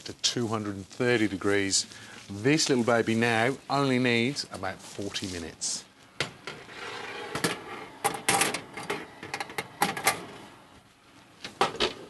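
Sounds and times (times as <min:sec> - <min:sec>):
metal tray scraping on oven rack: 0:06.5 - 0:10.5.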